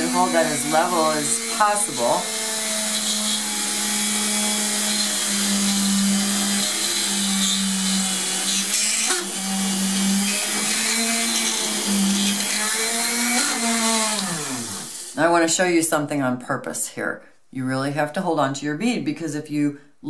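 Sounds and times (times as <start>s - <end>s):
drill bit boring into clay: 0.0s - 15.2s
drill press motor hum: 0.0s - 15.2s.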